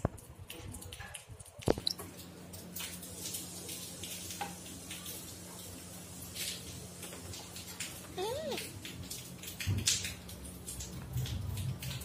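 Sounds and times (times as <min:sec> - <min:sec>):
low room hum and hiss: 0:00.0 - 0:12.0.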